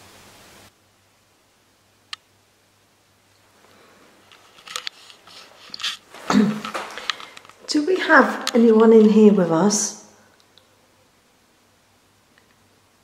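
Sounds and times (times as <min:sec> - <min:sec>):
rustling: 0:03.4 - 0:07.7.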